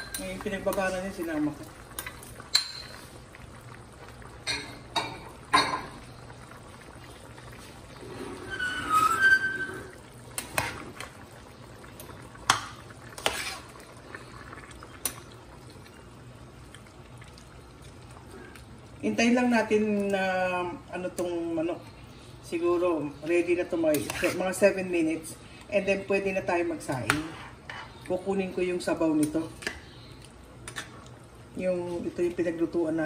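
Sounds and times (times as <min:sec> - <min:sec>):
spoon scraping pot: 0:13.1 - 0:13.8, 0:27.1 - 0:28.0.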